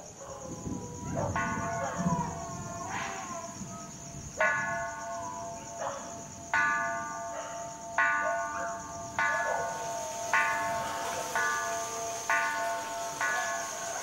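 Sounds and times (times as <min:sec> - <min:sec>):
insect trill: 0:00.0 - 0:14.0.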